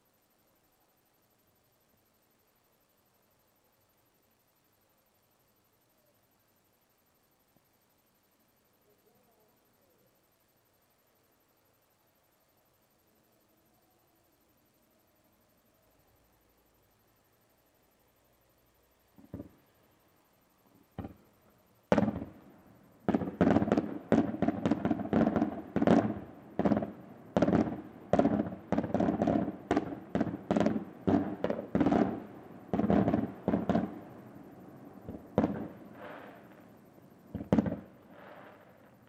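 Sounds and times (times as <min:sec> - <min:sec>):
fireworks bangs: 0:19.2 - 0:19.7, 0:20.8 - 0:39.0.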